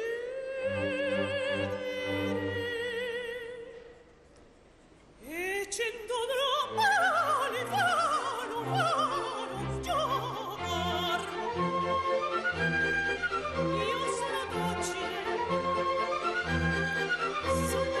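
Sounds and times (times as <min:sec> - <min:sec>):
operatic soprano singing: 0:00.0 - 0:04.0, 0:05.2 - 0:18.0
orchestra playing: 0:08.6 - 0:18.0.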